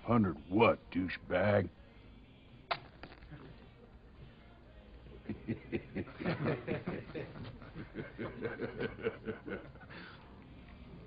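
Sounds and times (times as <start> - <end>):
man laughing: 5.2 - 9.9.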